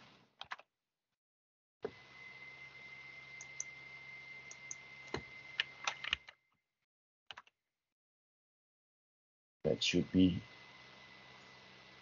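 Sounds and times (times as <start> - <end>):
computer keyboard clicks: 0.4 - 0.6, 4.5 - 6.4, 7.3 - 7.5
faint high whine: 1.9 - 6.3, 9.7 - 12.0.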